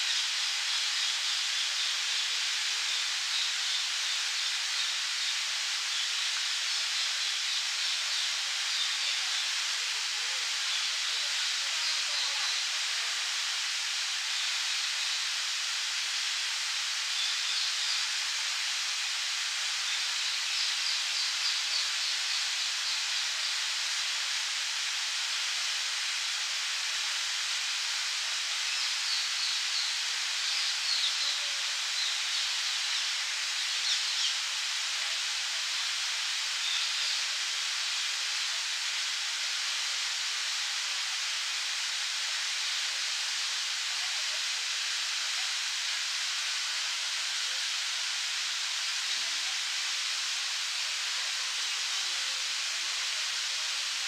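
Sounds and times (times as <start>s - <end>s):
fountain water splashing: 0.0s - 54.0s
small birds chirping: 28.6s - 34.5s.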